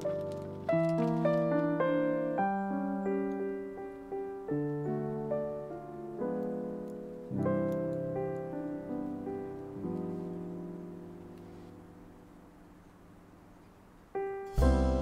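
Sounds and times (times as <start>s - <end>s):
soft piano music: 0.0s - 15.0s.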